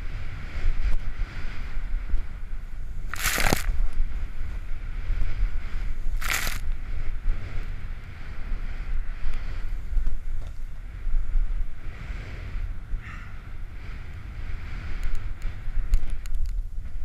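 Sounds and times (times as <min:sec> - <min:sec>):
wind buffeting microphone: 0:00.0 - 0:17.0
snow spraying hiss: 0:03.0 - 0:03.8, 0:05.5 - 0:06.6.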